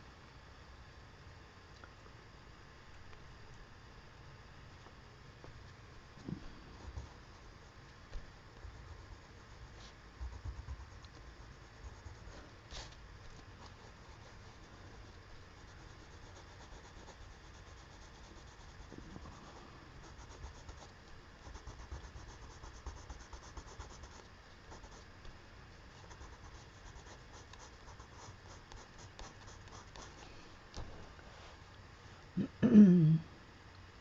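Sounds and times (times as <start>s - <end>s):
colored pencil shading on paper: 8.6s - 12.6s, 13.4s - 25.1s, 26.0s - 30.2s.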